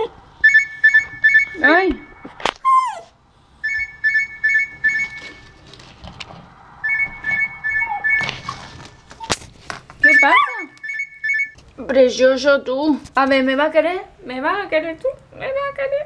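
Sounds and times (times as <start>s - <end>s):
phone alarm beeping: 0.4s - 2.4s, 3.6s - 5.6s, 6.8s - 9.0s, 10.0s - 11.6s
scuffling on tiled floor: 8.2s - 10.0s.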